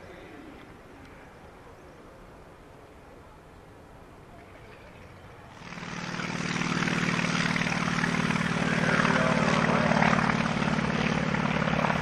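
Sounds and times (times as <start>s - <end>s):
propeller plane engine droning: 3.7s - 12.0s.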